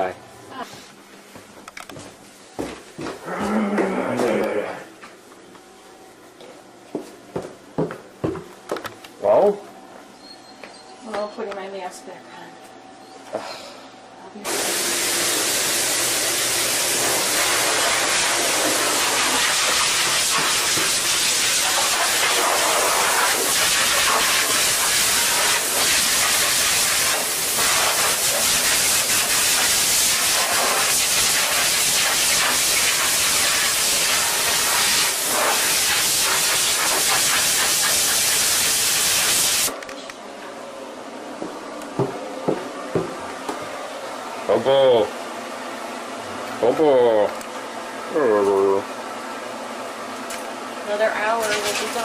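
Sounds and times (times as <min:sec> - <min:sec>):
dog dryer blowing air: 0:14.4 - 0:39.8, 0:51.2 - 0:52.0.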